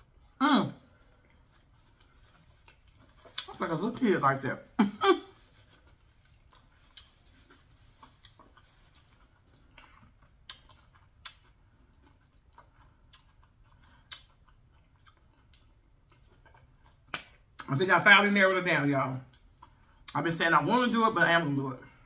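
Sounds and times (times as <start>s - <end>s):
person chewing food: 0.0s - 3.6s, 5.2s - 17.7s, 19.3s - 20.2s.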